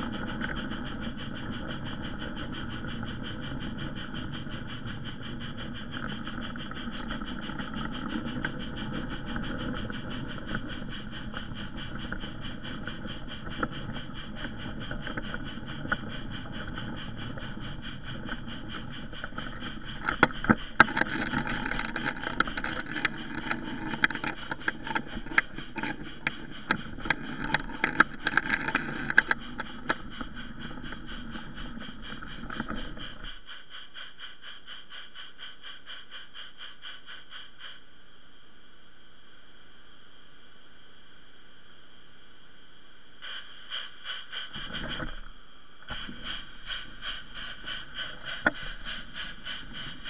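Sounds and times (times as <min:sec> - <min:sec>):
wheels clacking over rail joints: 0:00.0 - 0:33.4
train rumble: 0:00.0 - 0:38.7, 0:42.8 - 0:50.0
model train mechanical whine: 0:00.0 - 0:50.0.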